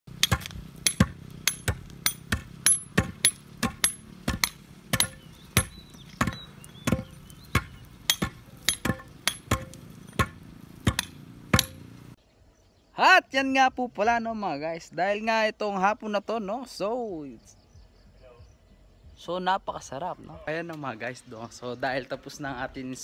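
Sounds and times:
steel tool striking hard ground: 0.1s - 12.0s.

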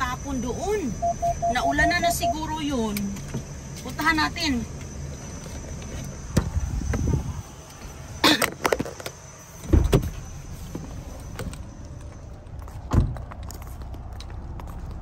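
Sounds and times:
car door opening and shutting: 8.3s - 11.6s, 12.9s - 13.2s.

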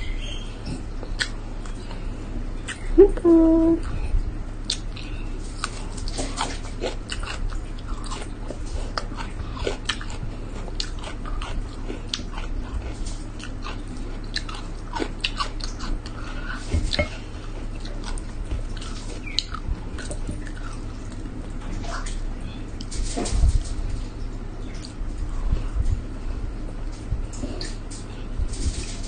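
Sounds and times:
steady low hum: 0.0s - 29.0s
close-miked chewing: 0.1s - 3.0s, 3.8s - 23.0s
mouth clicks and smacks: 1.1s - 1.8s.

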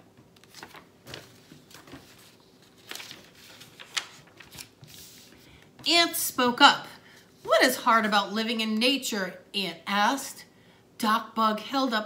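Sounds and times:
paper page rustling: 0.4s - 5.6s.

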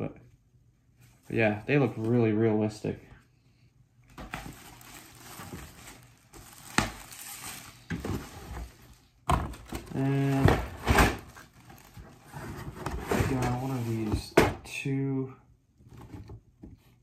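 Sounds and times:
plastic packaging rustling: 4.1s - 14.3s.

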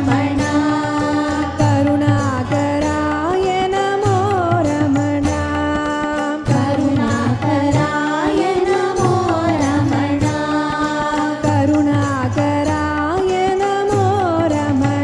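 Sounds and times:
people singing devotional song: 0.0s - 15.0s.

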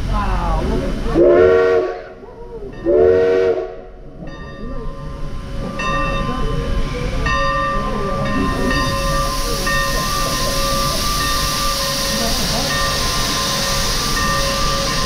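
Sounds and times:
train rumbling: 0.0s - 15.0s
steam locomotive whistle: 1.2s - 2.2s, 2.8s - 3.9s.

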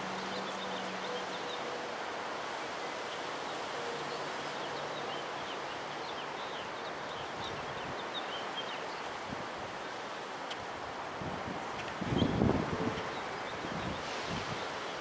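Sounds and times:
strong wind through branches: 0.0s - 15.0s.

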